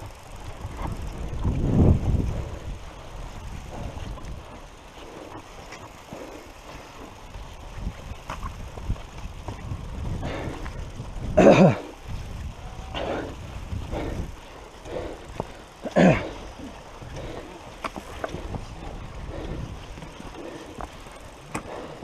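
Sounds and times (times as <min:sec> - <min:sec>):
wind: 0:00.0 - 0:22.0
heavy laboured breathing: 0:03.6 - 0:07.2, 0:10.1 - 0:22.0.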